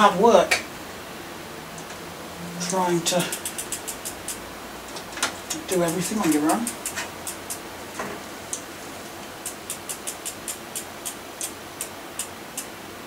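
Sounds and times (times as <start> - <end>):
light sharp clicks: 2.7 - 4.4.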